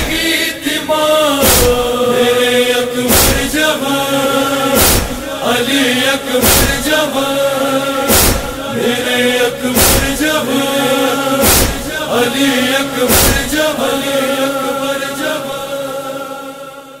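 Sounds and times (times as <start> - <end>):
male voices chanting: 0.0 - 17.0
deep thumps: 1.4 - 1.9, 3.1 - 3.6, 4.8 - 5.3, 6.4 - 7.0, 8.1 - 8.6, 9.8 - 10.3, 11.4 - 11.9, 13.1 - 13.6.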